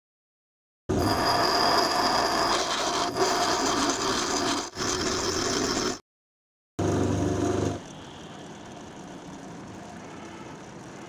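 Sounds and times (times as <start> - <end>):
bench grinder grinding metal: 1.0 - 6.0.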